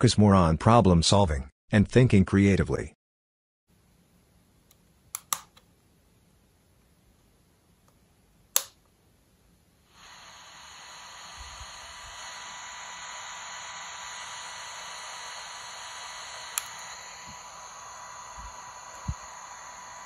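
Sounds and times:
radio switch clicking: 0:05.2 - 0:05.6, 0:08.6 - 0:08.8, 0:16.3 - 0:17.5
faint steady whistle: 0:09.9 - 0:20.0
radio static hiss: 0:09.9 - 0:20.0.

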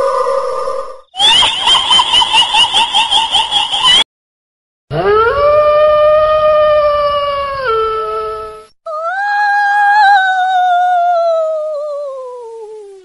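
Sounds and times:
long rising howl: 0:04.9 - 0:09.3.

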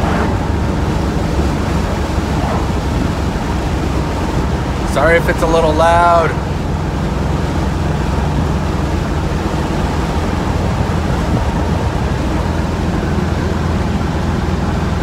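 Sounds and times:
car engine and exhaust drone: 0:00.0 - 0:15.0
road rush: 0:00.0 - 0:15.0.

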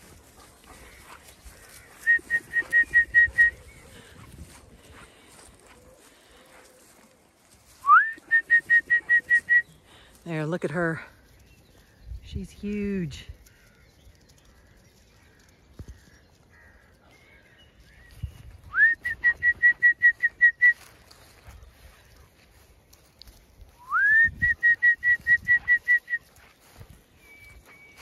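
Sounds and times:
person whistling calls: 0:02.0 - 0:03.7, 0:07.8 - 0:09.8, 0:18.6 - 0:20.9, 0:23.8 - 0:26.3.

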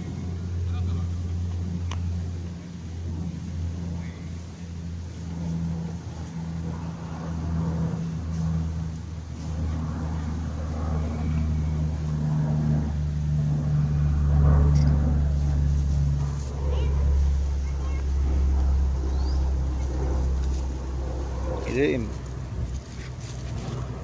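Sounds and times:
engine humming: 0:00.0 - 0:24.0.

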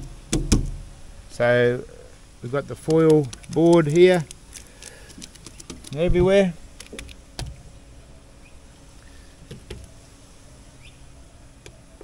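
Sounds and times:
light knocks on metal canopy: 0:00.3 - 0:00.8.

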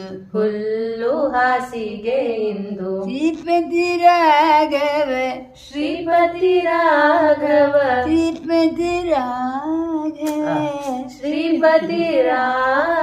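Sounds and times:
elderly man singing: 0:10.2 - 0:13.0.

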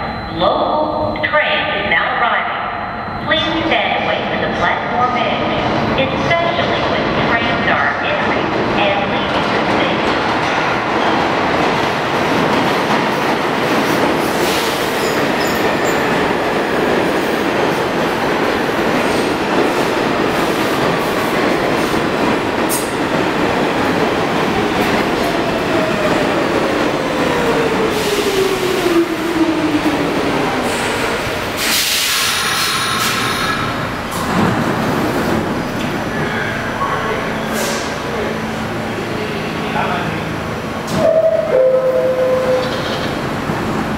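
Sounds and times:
subway train rumbling on rails: 0:00.0 - 0:43.9
train brakes screeching: 0:31.6 - 0:33.6, 0:37.4 - 0:38.0.

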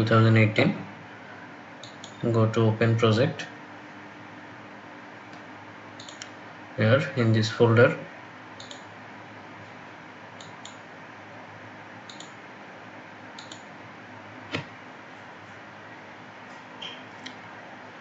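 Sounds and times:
faint hum: 0:00.0 - 0:18.0
microphone hiss: 0:00.0 - 0:18.0
computer mouse clicking: 0:01.8 - 0:02.2, 0:06.0 - 0:06.3, 0:08.6 - 0:08.9, 0:10.4 - 0:10.8, 0:12.1 - 0:12.4, 0:13.4 - 0:13.7.

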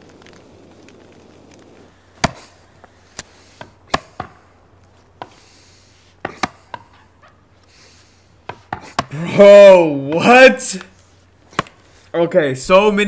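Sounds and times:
axe chopping wood: 0:02.2 - 0:02.5, 0:03.6 - 0:04.5, 0:05.2 - 0:05.4, 0:06.2 - 0:07.0, 0:08.4 - 0:09.2, 0:11.5 - 0:11.8.

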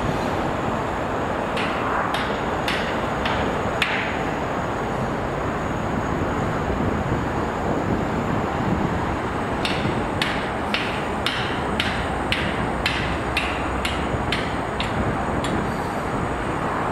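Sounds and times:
road traffic rumble: 0:00.0 - 0:16.9
sharp metallic knocks: 0:01.4 - 0:04.4, 0:09.6 - 0:15.7.

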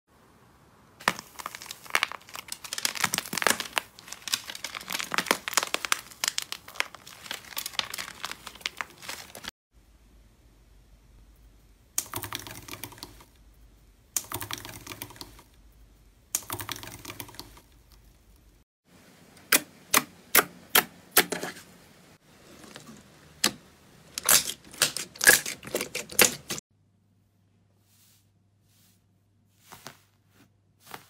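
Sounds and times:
foil crinkling on slime: 0:01.0 - 0:09.5, 0:24.2 - 0:26.6.

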